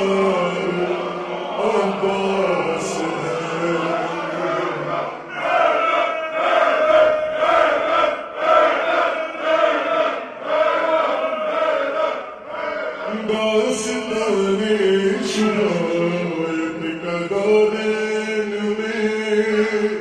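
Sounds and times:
man chanting with reverb: 0:00.0 - 0:08.0, 0:11.2 - 0:20.0.

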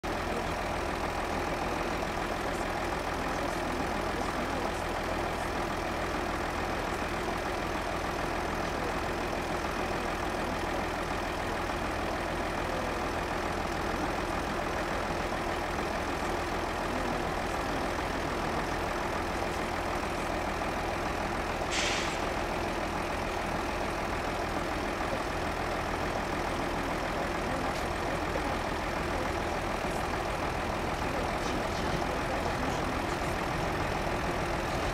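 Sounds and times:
distant diesel locomotive engine: 0:00.0 - 0:34.9
short hiss: 0:21.7 - 0:22.2.

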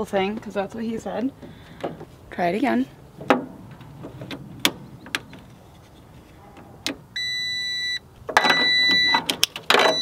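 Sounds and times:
jump starter warning beeps: 0:07.2 - 0:10.0.

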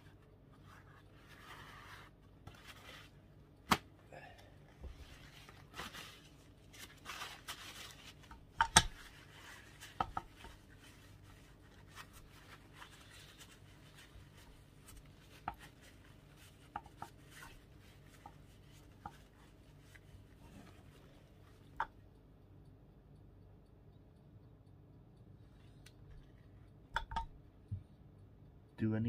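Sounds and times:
paper towel rustling: 0:00.6 - 0:03.2, 0:04.8 - 0:21.3.

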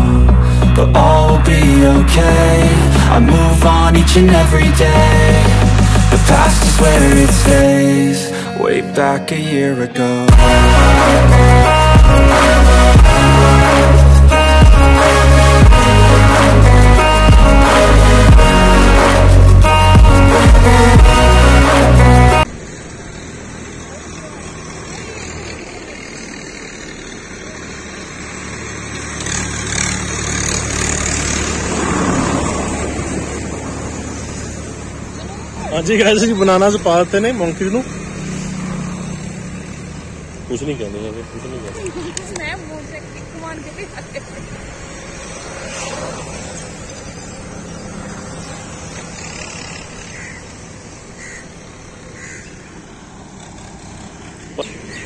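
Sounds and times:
vehicle passing by: 0:10.3 - 0:55.0
crows cawing: 0:49.4 - 0:55.0.

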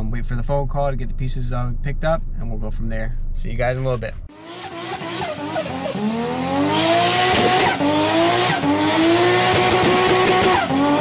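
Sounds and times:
race car engine accelerating: 0:04.3 - 0:11.0.

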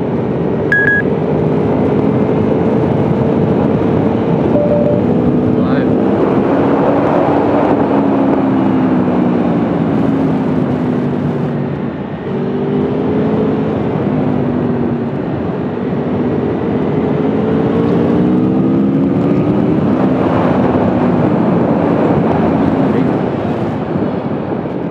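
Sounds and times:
motorcycle engine revving: 0:15.9 - 0:23.9.

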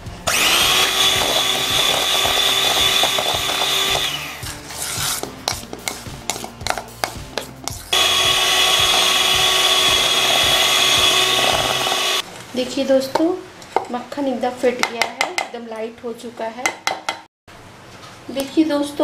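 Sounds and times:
electric hand mixer whining: 0:00.2 - 0:04.6, 0:07.9 - 0:12.2
spatula scraping and tapping bowl: 0:01.2 - 0:08.0.

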